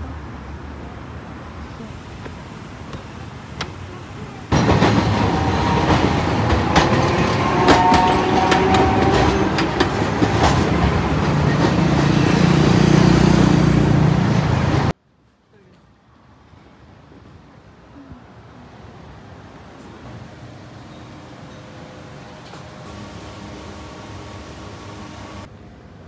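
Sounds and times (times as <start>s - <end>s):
quiet street background: 0.0s - 26.0s
tram wheels clattering over rail joints: 2.0s - 14.9s
wheels squealing: 3.0s - 12.9s.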